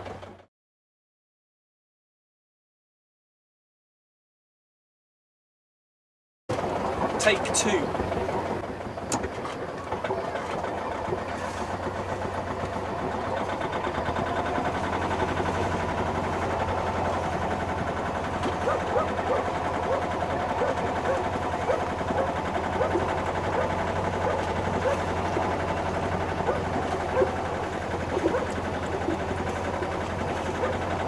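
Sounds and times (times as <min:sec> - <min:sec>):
boat engine running at low revs: 0:00.0 - 0:00.5, 0:06.5 - 0:31.0.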